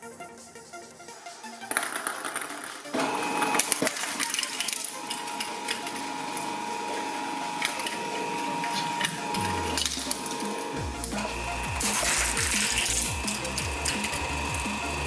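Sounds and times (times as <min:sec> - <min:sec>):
shredder motor whining: 0:02.9 - 0:15.0.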